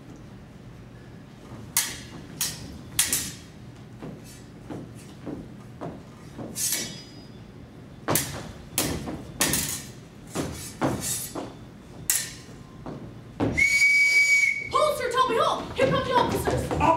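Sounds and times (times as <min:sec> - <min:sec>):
swords clashing: 0:01.8 - 0:03.4, 0:06.6 - 0:07.2, 0:08.1 - 0:09.9, 0:12.1 - 0:12.5.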